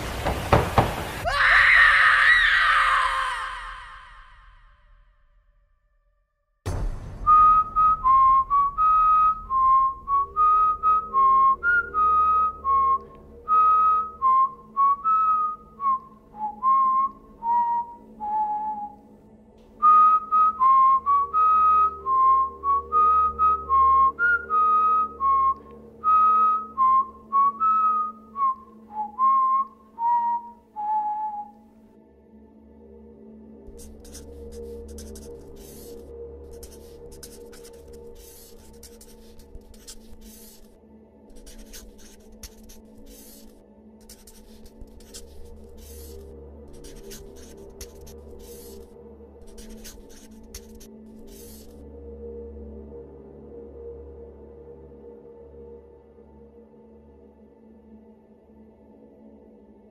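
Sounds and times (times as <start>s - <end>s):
soft background music: 6.7s - 59.9s
person whistling a slow tune: 7.2s - 19.2s, 19.8s - 31.8s
pen scribbling on paper: 33.7s - 51.8s
faint low drone: 50.9s - 59.9s.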